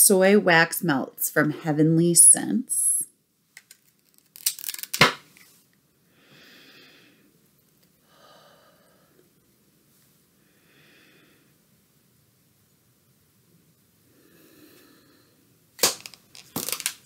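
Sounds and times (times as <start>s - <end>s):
plastic wrapping crinkling and tearing: 3.6s - 5.0s, 15.8s - 17.0s.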